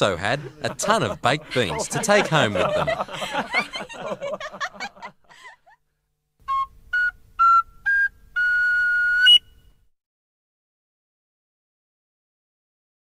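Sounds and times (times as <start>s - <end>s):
man chuckling: 0.3s - 5.7s
flute-like whistle tune: 6.4s - 9.8s.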